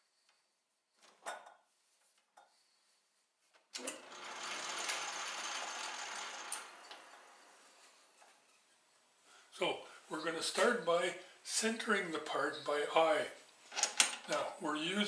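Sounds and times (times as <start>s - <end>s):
lathe motor whirring: 3.8s - 8.3s.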